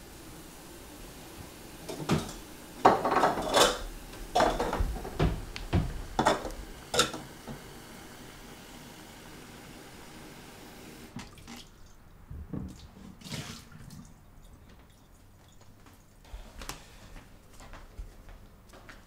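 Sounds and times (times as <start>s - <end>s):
footsteps: 4.1s - 6.8s, 14.7s - 19.0s
soft knocks on leather sofa: 4.8s - 6.1s.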